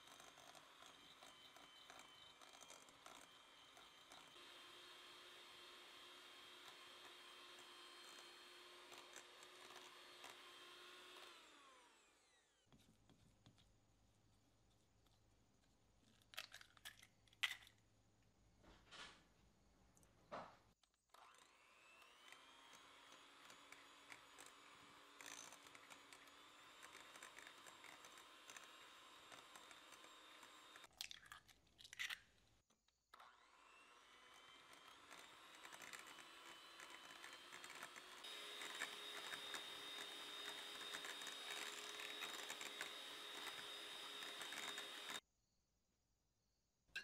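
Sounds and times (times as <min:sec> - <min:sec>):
electric hand mixer whine: 0:00.0 - 0:12.7, 0:21.1 - 0:30.9, 0:33.2 - 0:45.2.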